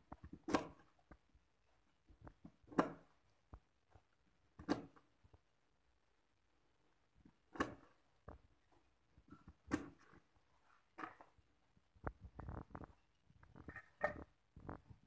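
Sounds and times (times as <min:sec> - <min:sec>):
cleaver chopping on wooden board: 0:02.7 - 0:03.0, 0:04.6 - 0:05.0.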